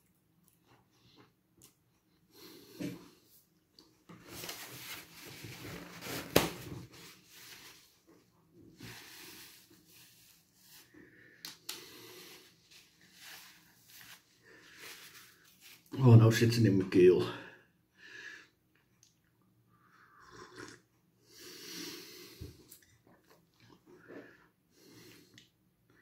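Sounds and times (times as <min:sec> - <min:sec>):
tissue rustling: 0:04.2 - 0:10.9, 0:12.1 - 0:16.0
person breathing hard: 0:17.5 - 0:18.6, 0:21.2 - 0:22.6.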